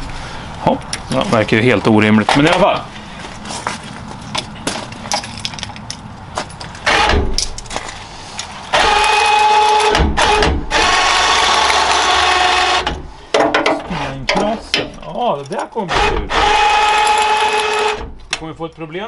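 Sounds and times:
electric motor running: 0:08.7 - 0:13.0, 0:16.0 - 0:18.0.

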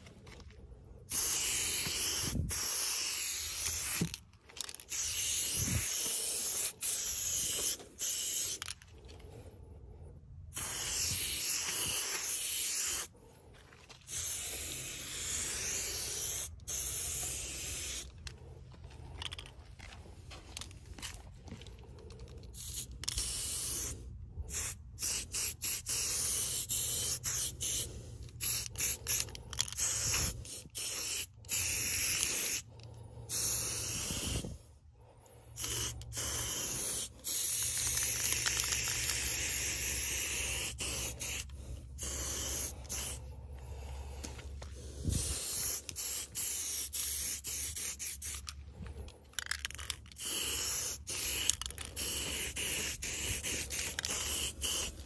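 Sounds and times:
spray paint can hissing: 0:01.1 - 0:08.8, 0:10.5 - 0:13.1, 0:14.1 - 0:18.2, 0:22.1 - 0:34.6, 0:35.5 - 0:48.6, 0:49.4 - 0:55.0.

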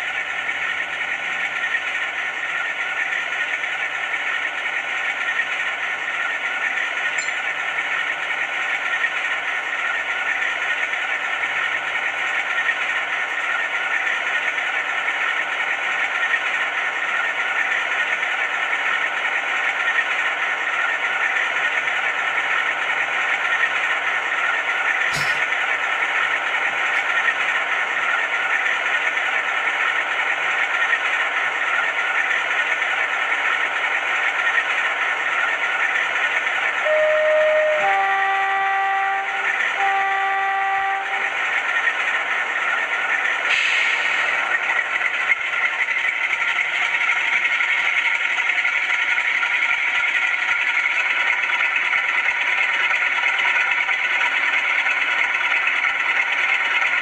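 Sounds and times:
model locomotive engine drone: 0:00.0 - 0:57.0
brief tone: 0:07.2 - 0:07.6, 0:25.1 - 0:25.5, 0:36.8 - 0:41.4
locomotive horn blasts: 0:36.8 - 0:41.4.

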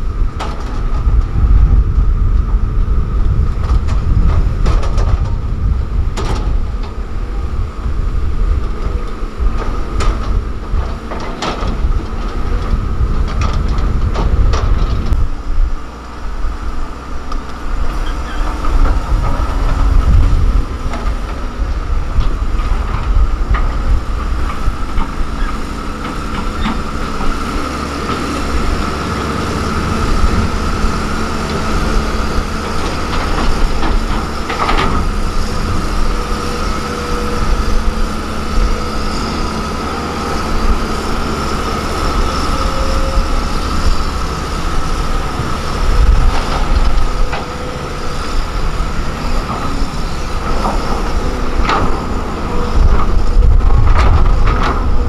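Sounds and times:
diesel engine rumbling under load: 0:00.0 - 0:55.0.

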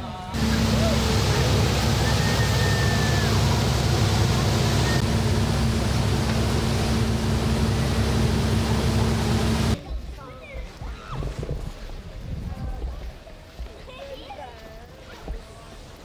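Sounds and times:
boat engine humming: 0:00.1 - 0:09.8
rush of wind and water: 0:00.3 - 0:16.0.

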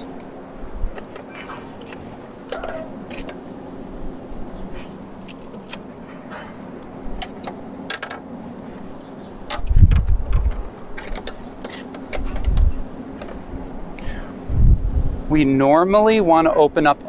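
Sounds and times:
steady low hum: 0:00.0 - 0:17.0
metal latches clicking: 0:01.0 - 0:03.4, 0:09.5 - 0:13.4
loud low rumbles: 0:14.1 - 0:15.4.

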